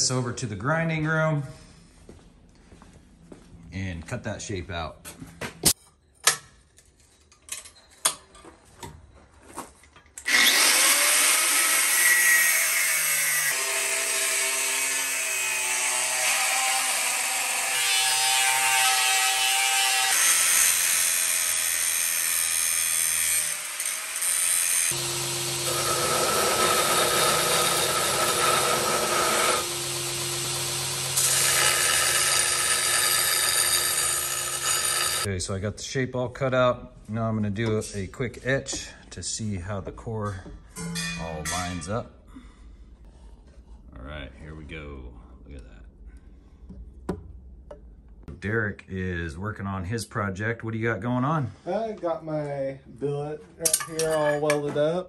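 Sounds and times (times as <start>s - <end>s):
angle grinder cutting steel: 10.2s - 35.3s.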